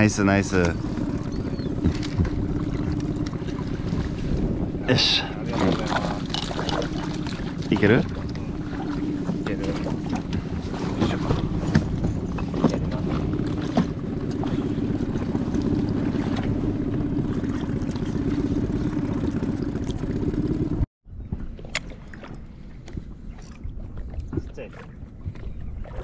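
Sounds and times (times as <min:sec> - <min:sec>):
boat engine running: 0:00.0 - 0:26.0
knocks on boat: 0:01.6 - 0:03.4, 0:05.6 - 0:14.6.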